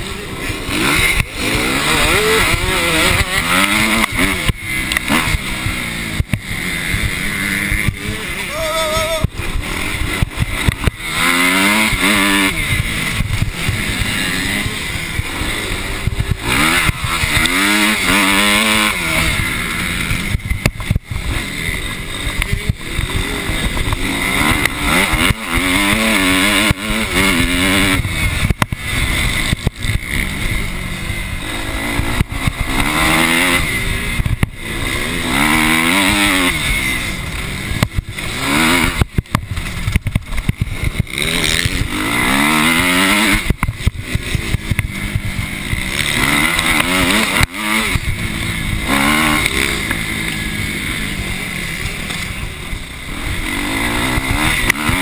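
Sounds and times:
motocross bike engine revving: 0:00.0 - 0:55.0
rush of noise: 0:00.0 - 0:55.0.

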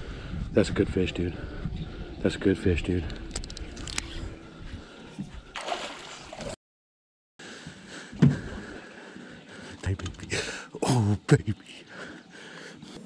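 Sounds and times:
lake water sloshing and splashing: 0:05.5 - 0:06.6.

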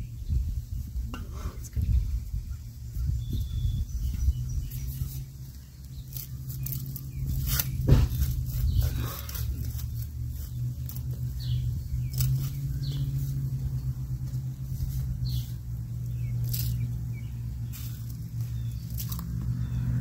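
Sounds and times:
bird chirps: 0:00.0 - 0:20.0
low machine hum: 0:00.0 - 0:20.0
bulb planter crunching into soil: 0:05.9 - 0:13.3, 0:14.2 - 0:19.8.

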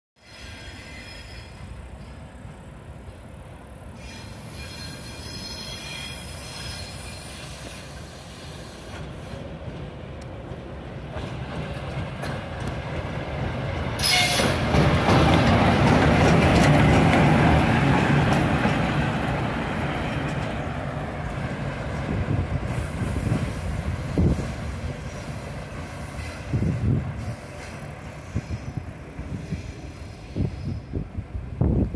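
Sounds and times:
wheels squealing on rails: 0:00.2 - 0:02.4, 0:03.9 - 0:09.9, 0:11.1 - 0:20.6, 0:22.0 - 0:31.2
wheels knocking: 0:14.5 - 0:19.0.

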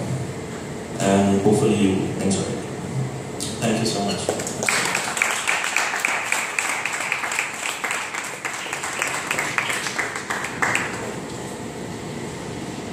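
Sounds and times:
audience applauding: 0:04.3 - 0:11.3.

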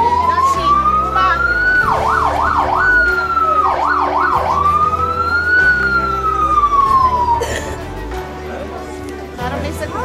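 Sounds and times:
electronic siren wailing: 0:00.0 - 0:07.4.

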